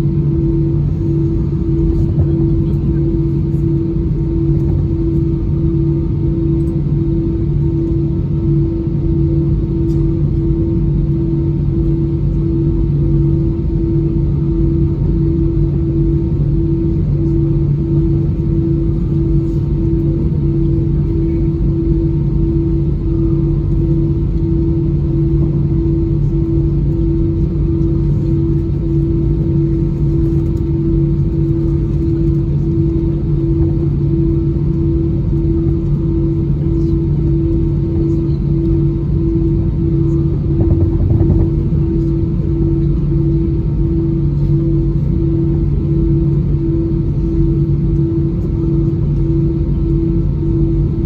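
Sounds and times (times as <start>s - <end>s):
airliner cabin drone: 0.0s - 51.0s
pulsing hum: 0.0s - 51.0s
low rumble: 39.2s - 44.7s.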